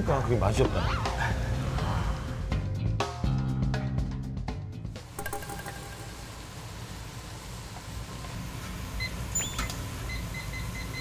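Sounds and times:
kitchen timer beeping: 5.2 - 6.4.

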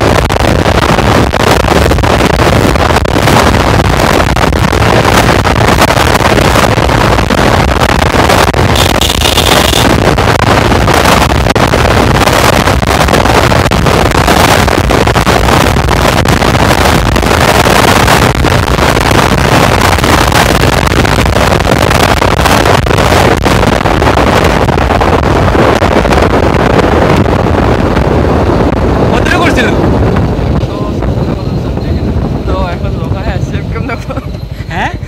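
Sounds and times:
motorcycle engine running: 0.0 - 29.1
wind rush on microphone: 0.0 - 35.0.

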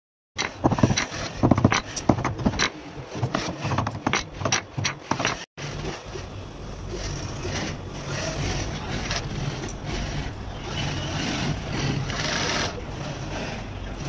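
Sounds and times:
sewing machine running: 7.4 - 14.0.

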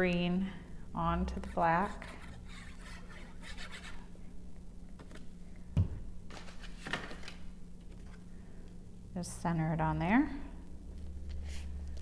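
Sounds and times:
paper scratching and rustling: 1.5 - 4.0.

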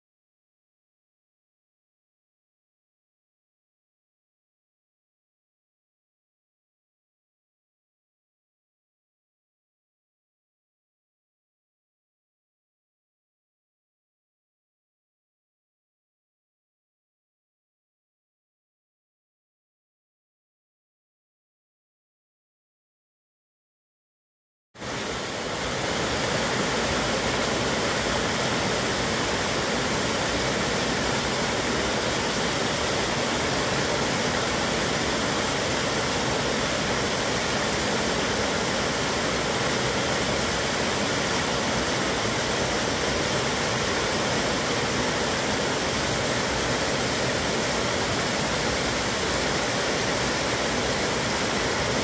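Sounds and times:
waterfall rushing over rocks: 24.8 - 52.0.

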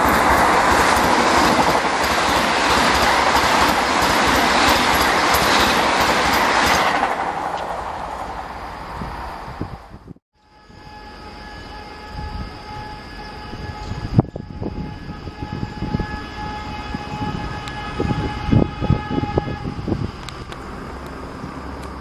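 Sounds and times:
train rumbling and thudding: 0.0 - 10.2, 12.2 - 22.0
train horn: 10.4 - 20.2.

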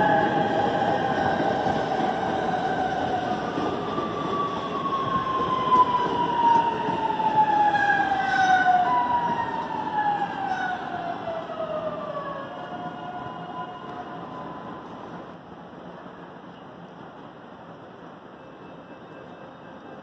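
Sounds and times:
steel wheels rumbling on rails: 0.0 - 11.8.

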